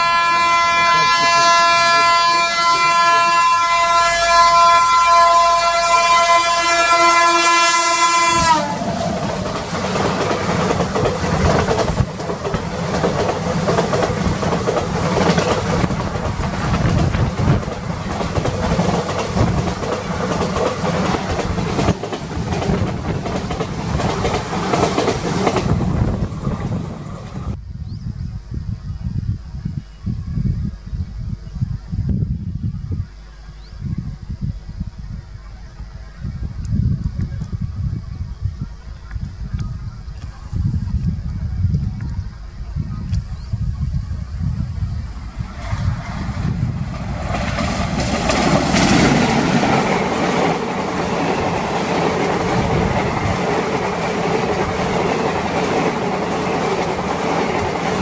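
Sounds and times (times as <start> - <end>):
locomotive horn long blast: 0.0 - 8.9
train coaches rumbling past: 0.0 - 27.6, 33.0 - 58.0.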